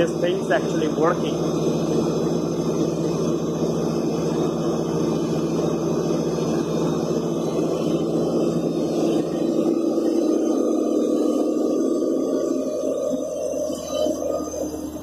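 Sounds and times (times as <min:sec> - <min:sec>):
drilling rig engine running: 0:00.0 - 0:15.0.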